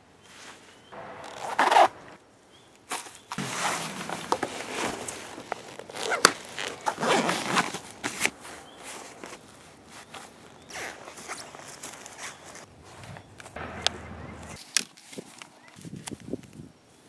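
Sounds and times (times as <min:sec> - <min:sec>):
fasteners zipping and ripping: 0:01.2 - 0:01.9, 0:03.4 - 0:08.4
fabric and padding rustling: 0:02.9 - 0:13.3.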